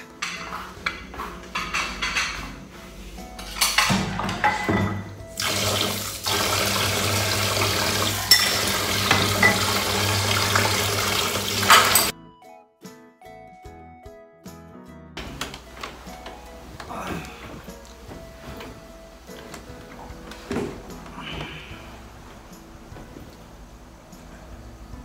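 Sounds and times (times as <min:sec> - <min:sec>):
ceramic dishes clinking in sink: 0:01.6 - 0:02.5, 0:03.4 - 0:05.2, 0:08.2 - 0:09.9, 0:11.6 - 0:12.1
tap water running into sink: 0:05.3 - 0:12.1.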